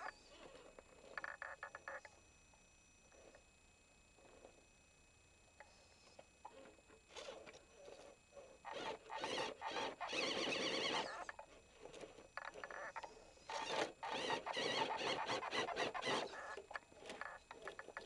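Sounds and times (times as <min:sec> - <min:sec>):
electric motor and drivetrain whining: 0:06.5 - 0:12.7, 0:13.3 - 0:18.0.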